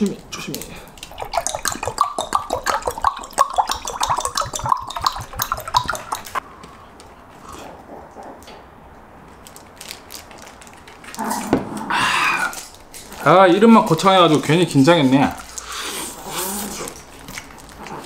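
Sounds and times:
liquid glugging into glass: 1.0 - 6.4.

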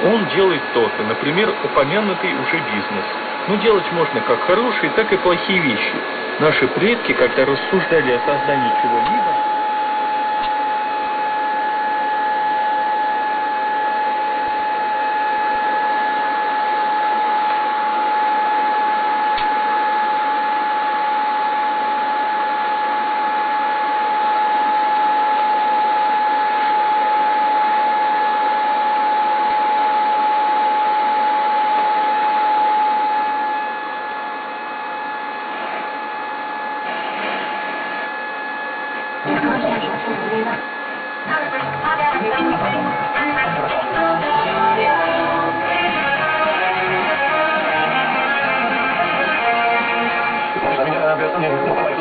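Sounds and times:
radio static hiss: 0.0 - 52.0
high steady whistle: 7.3 - 36.8.

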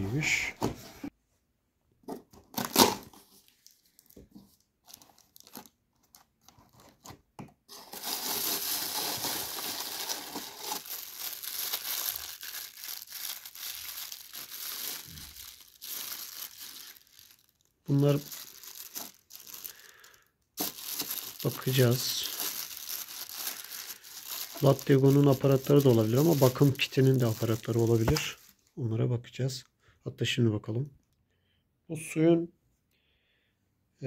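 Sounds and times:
plastic wrapping crinkling: 2.5 - 7.1, 7.7 - 28.7.

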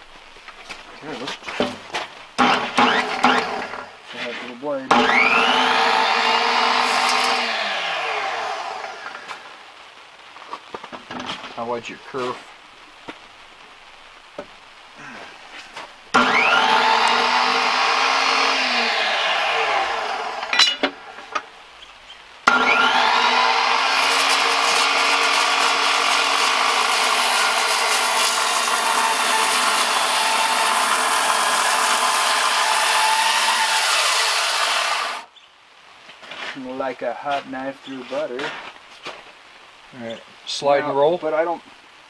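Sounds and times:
saw cutting through timber: 2.4 - 9.4, 16.1 - 20.8, 22.5 - 35.3
circular saw whine: 4.9 - 9.2, 16.2 - 20.8, 22.5 - 35.2.

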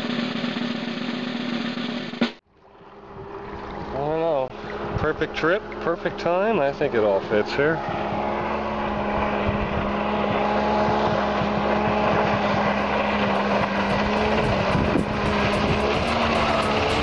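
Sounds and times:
jet ski engine running: 0.0 - 17.0
water spray hissing: 12.3 - 17.0.

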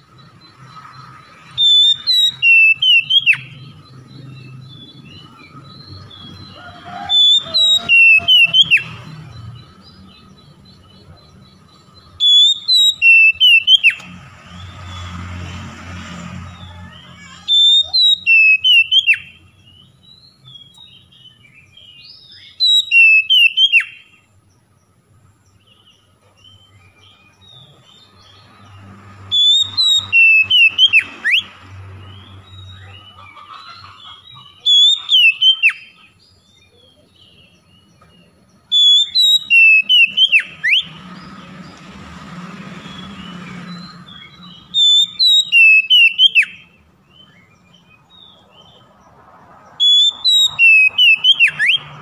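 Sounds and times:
bird singing clear whistles: 0.1 - 14.1, 17.2 - 24.3, 29.3 - 33.2, 34.4 - 41.2, 42.8 - 48.8, 49.8 - 52.0
bird chattering notes: 32.8 - 36.1.

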